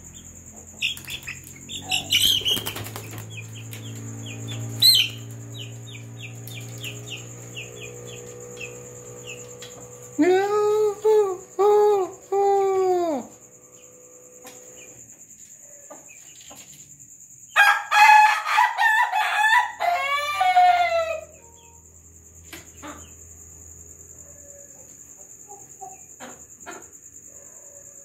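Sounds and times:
rooster crowing: 17.5 - 21.8.

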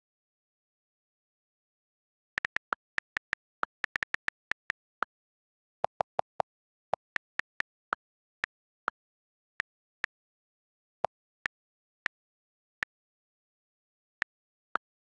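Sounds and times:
on-screen keyboard clicks: 2.4 - 5.1.

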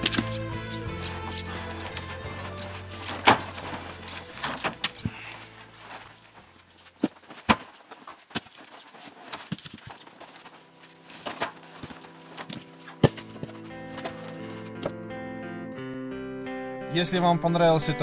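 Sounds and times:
logs thudding onto pile: 2.7 - 14.9.

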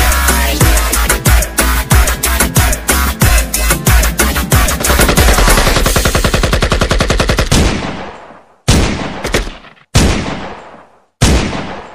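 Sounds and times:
automatic gunfire burst: 4.8 - 8.0
single gunshots with echo: 7.5 - 11.9.

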